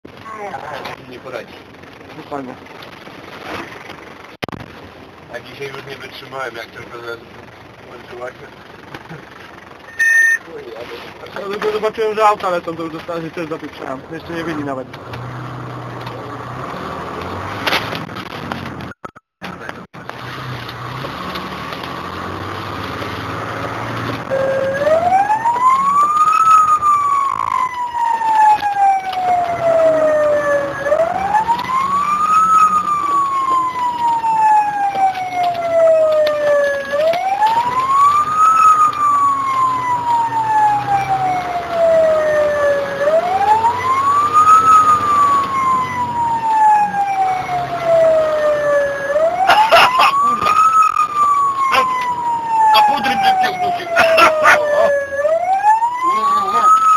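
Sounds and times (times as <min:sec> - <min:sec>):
truck engine running: 0:00.1 - 0:55.5
fire engine siren wailing: 0:20.6 - 0:56.9.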